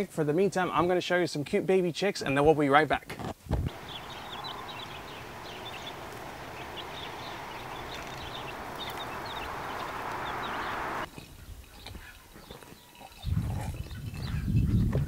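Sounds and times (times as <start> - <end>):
baby chicks peeping: 3.7 - 11.1
steady rushing noise: 3.7 - 11.1.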